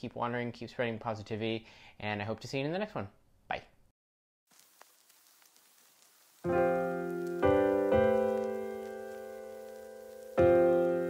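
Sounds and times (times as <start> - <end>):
piano chords ringing: 6.5 - 11.0.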